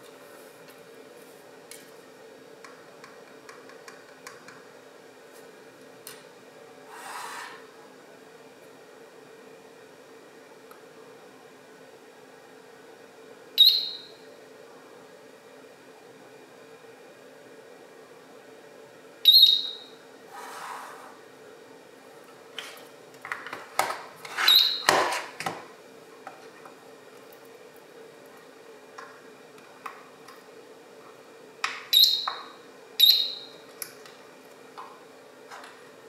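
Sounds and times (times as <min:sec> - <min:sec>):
short high alarm beeps: 0:13.6 - 0:14.1, 0:19.3 - 0:19.8.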